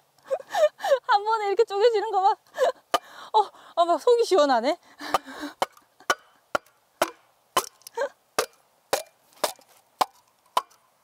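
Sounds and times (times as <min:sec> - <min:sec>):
bamboo pole cracking: 0:05.6 - 0:10.8.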